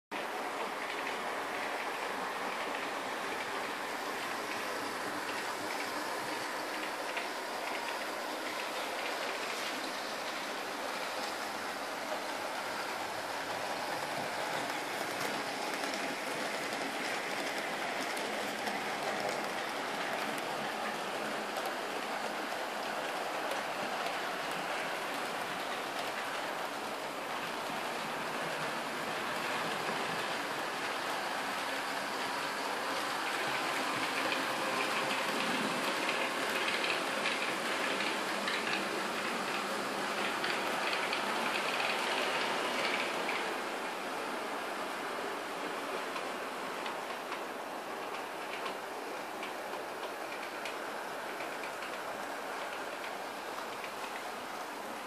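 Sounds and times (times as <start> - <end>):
model train wheels clattering: 11.2 - 26.6, 29.4 - 43.6
rapid clicks over rail joints: 33.2 - 43.6.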